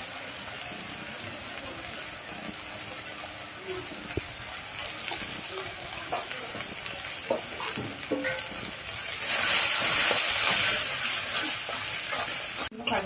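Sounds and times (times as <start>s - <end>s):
loud sizzle: 0.0s - 13.0s
spice paste frying in oil: 0.0s - 13.0s
metal spatula scraping a pan: 4.7s - 13.0s.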